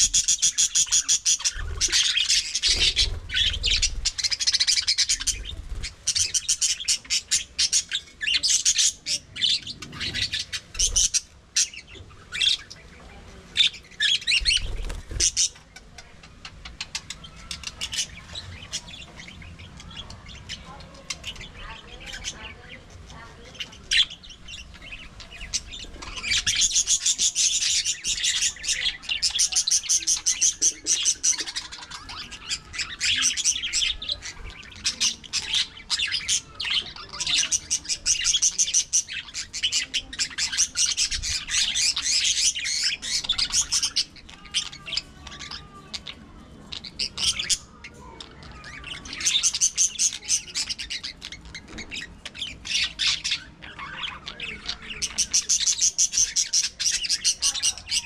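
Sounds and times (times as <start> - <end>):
budgerigars chirping: 0.0 - 58.0.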